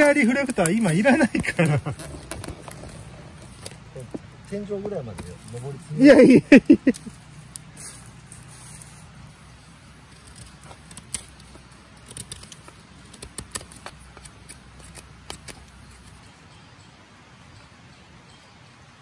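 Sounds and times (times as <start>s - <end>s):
knife whittling wood: 0.0s - 3.8s.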